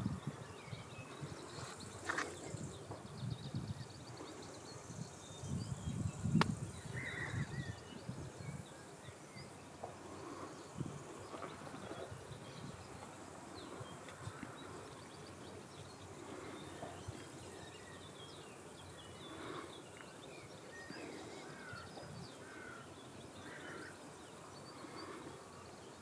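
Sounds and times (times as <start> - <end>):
sharp click: 6.4 - 6.6.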